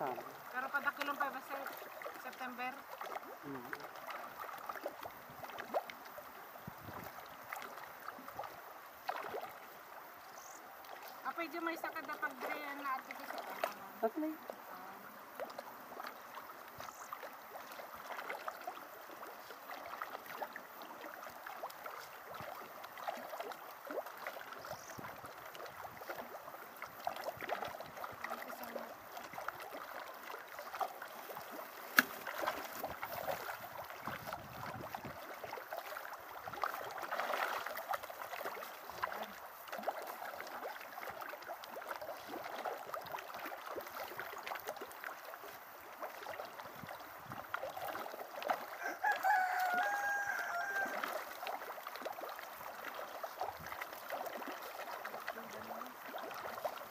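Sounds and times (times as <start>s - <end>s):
water splashing and lapping: 0.0s - 56.9s.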